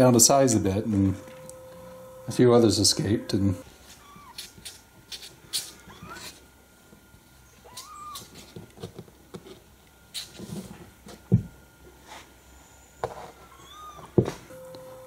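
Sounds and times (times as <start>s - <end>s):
kittens mewing: 3.9s - 4.6s, 5.6s - 6.4s, 7.6s - 8.3s, 13.5s - 14.2s
claws scratching cardboard: 3.9s - 6.4s.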